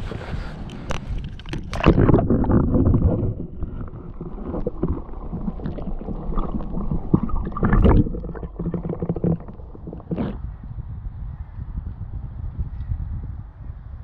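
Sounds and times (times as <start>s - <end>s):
muffled underwater sloshing: 0.8s - 10.4s
irregular knocks underwater: 1.2s - 10.4s.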